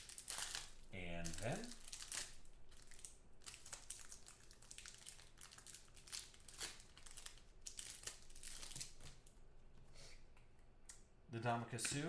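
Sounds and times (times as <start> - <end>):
foil wrapper crinkling: 0.0 - 9.4.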